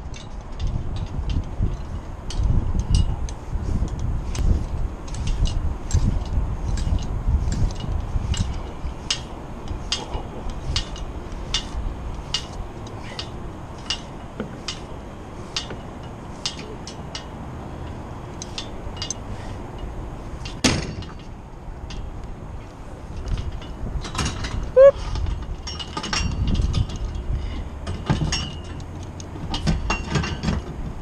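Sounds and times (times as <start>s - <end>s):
pulley rigging clicking: 0.0s - 20.6s
wind on microphone: 0.0s - 20.6s, 21.6s - 28.4s.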